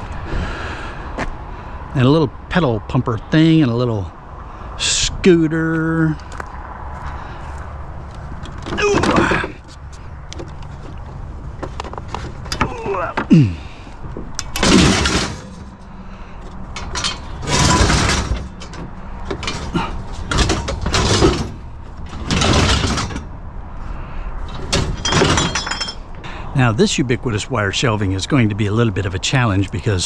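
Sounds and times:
metal scrap clanking and scraping: 14.3 - 23.4, 24.4 - 26.2.

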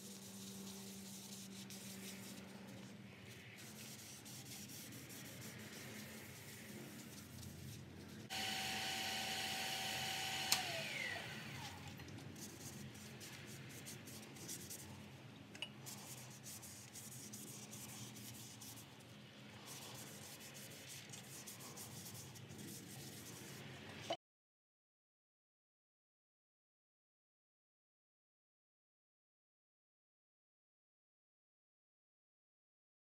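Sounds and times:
lathe motor whine: 8.3 - 11.9.

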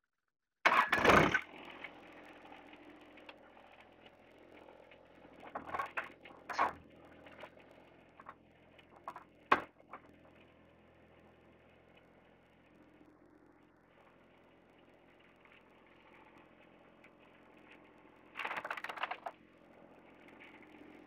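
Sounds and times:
loud clatter: 0.7 - 3.5, 18.4 - 19.4.

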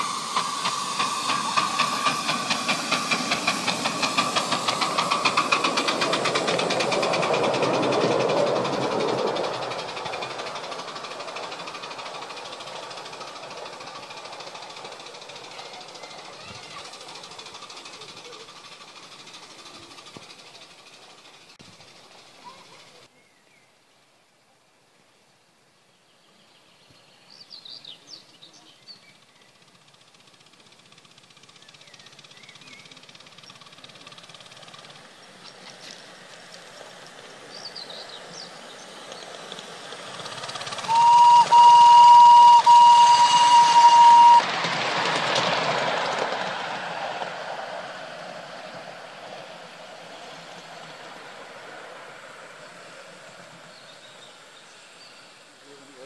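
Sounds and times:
steam locomotive running: 0.0 - 23.1, 27.3 - 56.0
train passing rush: 0.0 - 23.1, 29.1 - 56.0
steam whistle: 40.8 - 44.6.

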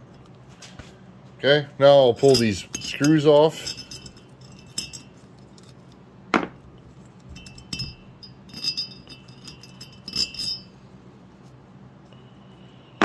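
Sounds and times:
screws clinking against metal: 2.0 - 6.0, 6.8 - 10.8.

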